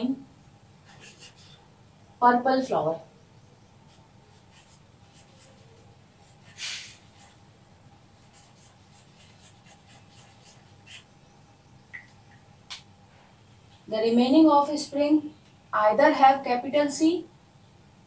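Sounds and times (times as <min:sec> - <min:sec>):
marker pen on whiteboard: 0:00.8 - 0:01.7, 0:03.8 - 0:07.5, 0:08.1 - 0:11.2.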